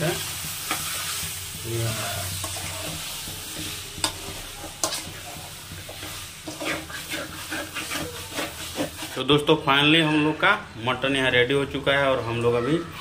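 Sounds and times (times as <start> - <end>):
metal spoon scraping pan: 0.0 - 9.4
frying sizzle: 0.0 - 13.0.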